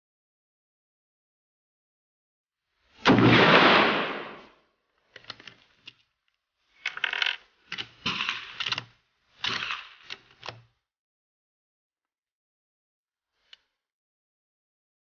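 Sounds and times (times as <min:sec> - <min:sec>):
rifle shot: 0:03.0 - 0:04.6
rifle action clicking and rattling: 0:06.8 - 0:10.6.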